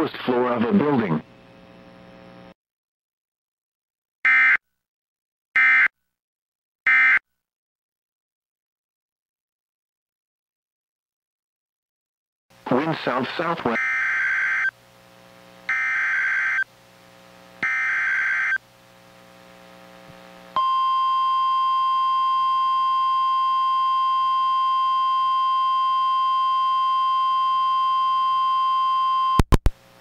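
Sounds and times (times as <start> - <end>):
steady alarm tone: 13.7 - 14.7, 17.6 - 18.6.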